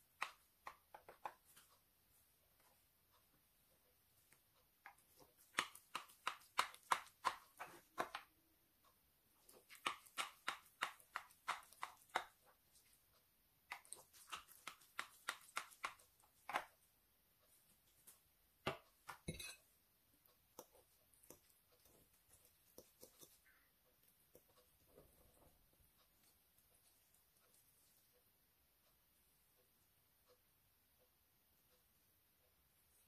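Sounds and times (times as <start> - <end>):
knife chopping rice cake: 4.9 - 8.3, 9.5 - 12.4, 13.7 - 16.7.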